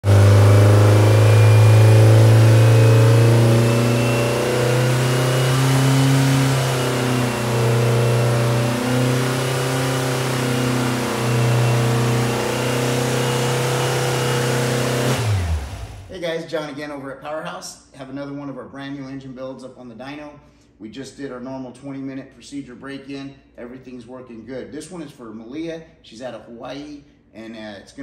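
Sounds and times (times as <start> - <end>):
air-cooled engine running: 0.0 - 16.1.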